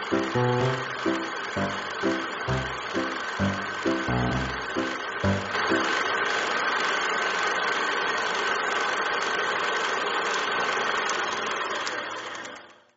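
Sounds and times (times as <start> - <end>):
music: 0.0 - 6.1
film projector whirring: 4.8 - 12.8.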